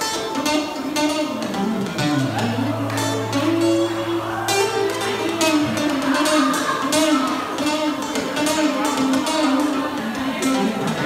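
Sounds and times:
acoustic guitar strummed and picked: 0.0 - 11.0.

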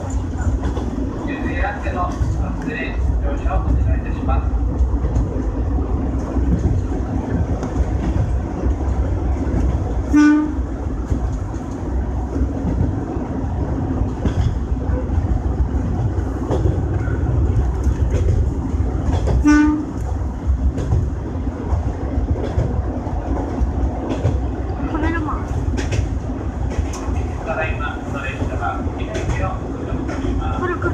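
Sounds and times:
diesel railcar engine rumble: 0.0 - 30.9
wheels clacking over rail joints: 0.0 - 30.9
train horn toots: 10.1 - 10.6, 19.4 - 20.0.

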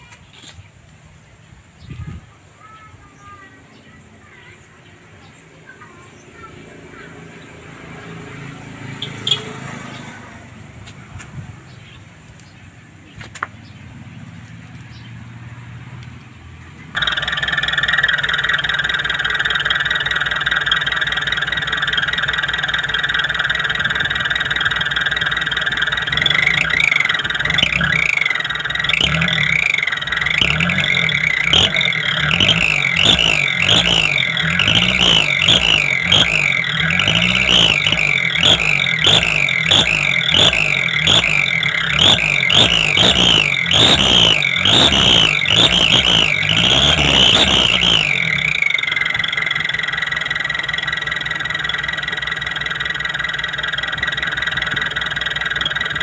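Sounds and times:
engine running: 3.7 - 56.0
exhaust pipe whistling: 8.8 - 10.0, 17.0 - 56.0.

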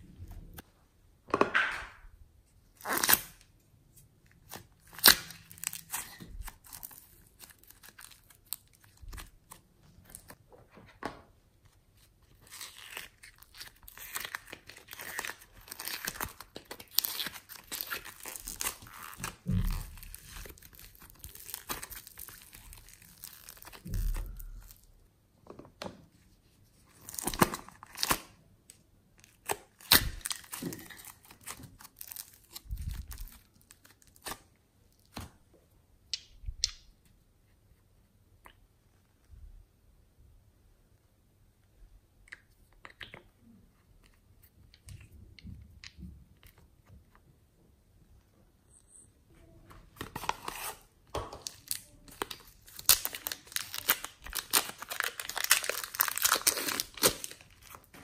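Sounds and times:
slime rustling tears: 12.4 - 24.8, 29.3 - 34.4, 51.5 - 58.0.

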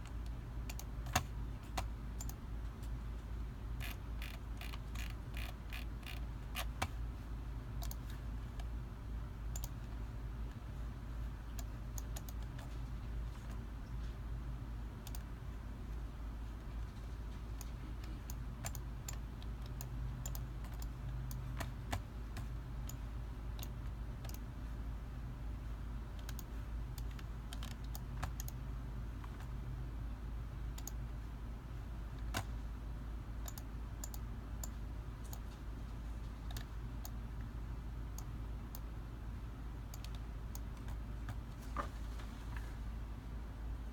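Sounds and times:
steady low hum: 0.0 - 43.9
mouse and keyboard clicks: 3.8 - 7.0, 11.5 - 12.8, 26.2 - 28.6.

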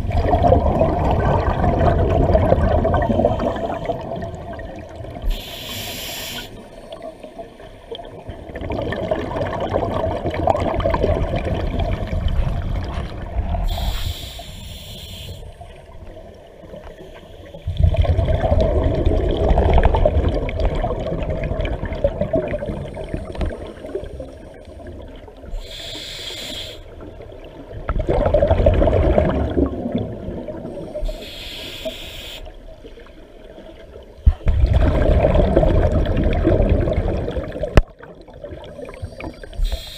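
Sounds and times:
bubbling exhalation: 0.0 - 4.4, 27.9 - 30.6, 34.5 - 37.8
regulator hissing inhalations: 5.3 - 6.7, 13.6 - 15.7, 25.6 - 27.0, 30.9 - 32.6, 39.5 - 39.9.

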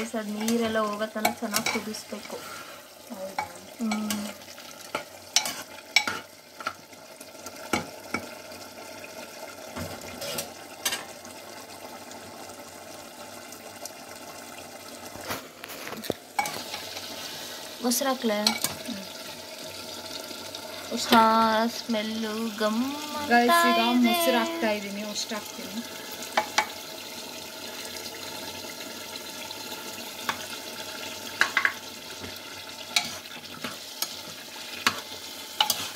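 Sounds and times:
curry simmering and sizzling in pan: 0.0 - 35.9
spoon stirring and knocking on pan: 0.4 - 2.3, 4.9 - 6.8, 7.7 - 8.3, 18.4 - 18.8, 26.4 - 26.8, 31.4 - 35.9.

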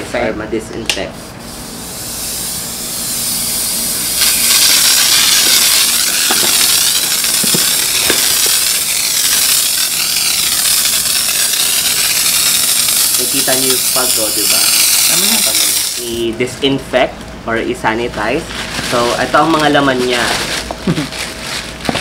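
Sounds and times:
electric mist sprayer hissing: 1.5 - 16.3.

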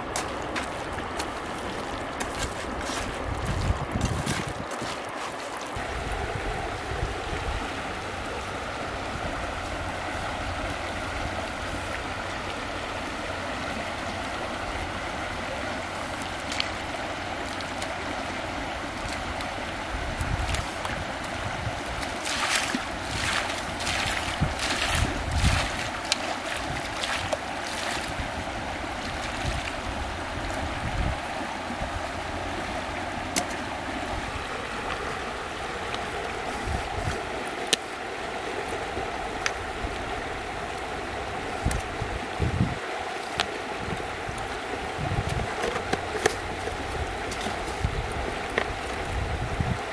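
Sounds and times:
river running over rocks: 0.0 - 49.9
wind rumble on microphone: 0.0 - 49.9.

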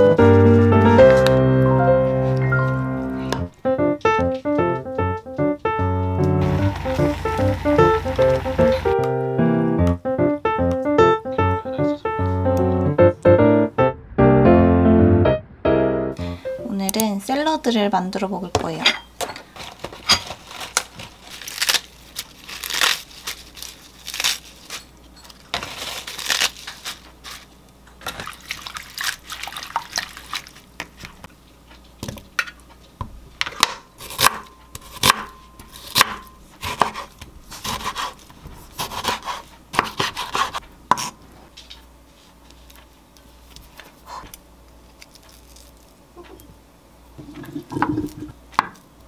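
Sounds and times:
lettuce leaves tearing and rustling: 19.6 - 27.6, 28.2 - 30.7, 43.5 - 46.4.

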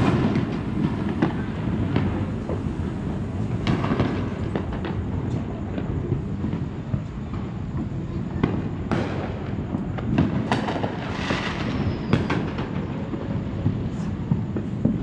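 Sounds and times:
sharp firework reports: 0.0 - 5.2
firework crackling burst: 0.0 - 15.0
fireworks bangs: 0.0 - 15.0.

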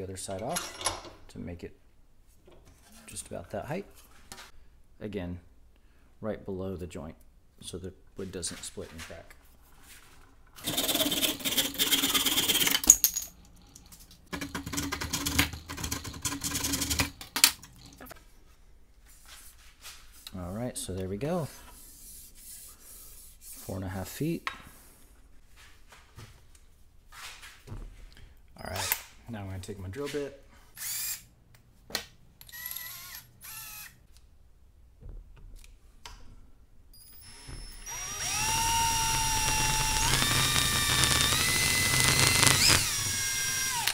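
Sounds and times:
handsaw cutting bamboo: 10.6 - 12.7, 37.9 - 42.9
cordless drill motor: 30.8 - 31.2, 32.5 - 34.0, 37.1 - 43.9.

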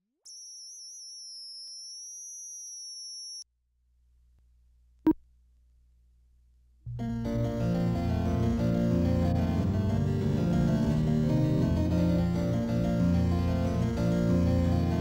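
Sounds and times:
keyboard music: 6.9 - 15.0.

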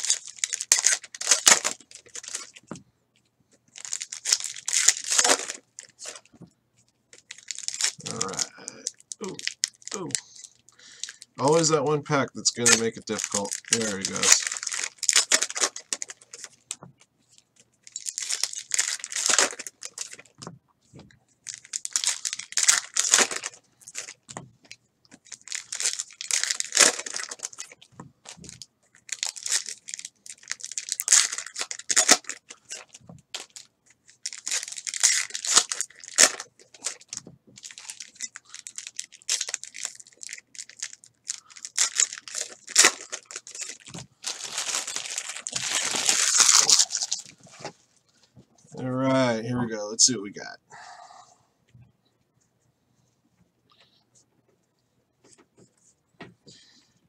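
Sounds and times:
plastic wrappers tearing and crumpling: 0.0 - 2.6, 3.7 - 6.3, 7.1 - 16.7, 17.8 - 20.4, 21.4 - 24.4, 25.2 - 47.6.

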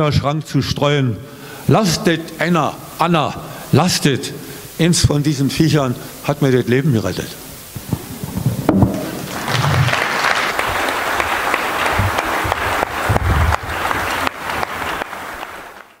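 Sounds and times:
audience applauding: 9.0 - 16.0.

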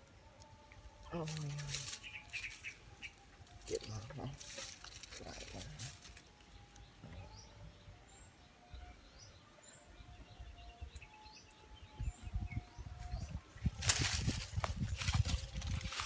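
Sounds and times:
rustling of dry leaves: 0.0 - 6.9, 13.6 - 16.0
faint birds chirping: 0.0 - 16.0.

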